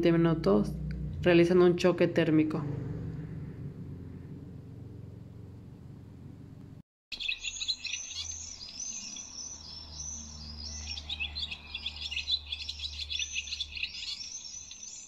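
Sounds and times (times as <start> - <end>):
low steady hum: 0.0 - 6.8
small birds chirping and singing: 7.1 - 15.0.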